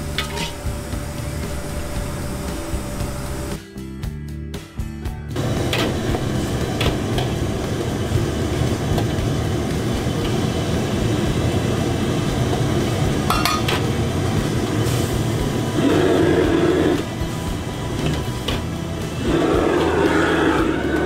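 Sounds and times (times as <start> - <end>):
gas burner roaring: 0.0 - 3.6, 5.2 - 21.0
metal ladle scraping in wok: 0.2 - 0.6.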